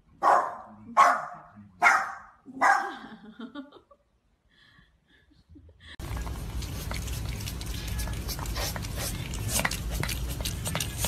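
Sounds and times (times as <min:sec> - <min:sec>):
small dog barking: 0:00.2 - 0:03.0.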